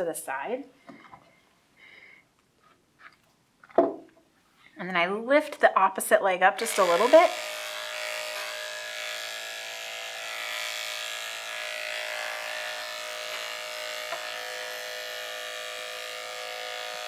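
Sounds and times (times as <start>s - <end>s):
electric clipper humming: 6.6s - 17.0s.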